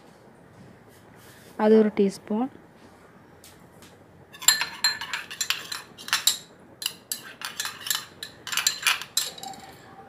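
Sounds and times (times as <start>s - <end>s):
spoon clinking against glass bowl: 4.4s - 9.9s.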